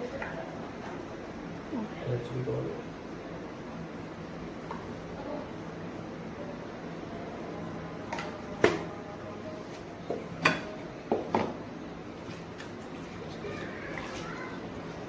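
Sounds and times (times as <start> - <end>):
kitchenware clinking against dishes: 10.4 - 11.6.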